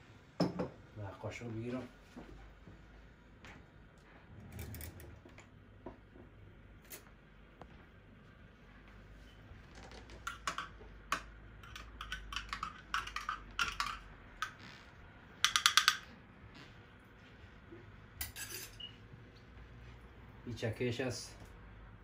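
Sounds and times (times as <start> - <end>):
spoon clinking on ceramic dishes: 10.3 - 14.6, 18.2 - 18.9.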